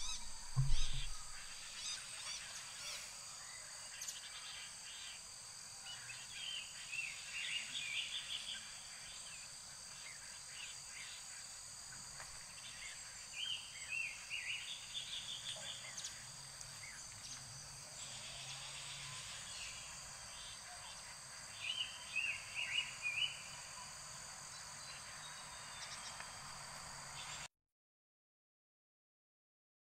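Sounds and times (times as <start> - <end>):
songbird chirping: 0.0 - 2.5, 12.6 - 27.5
insects droning: 0.0 - 27.5.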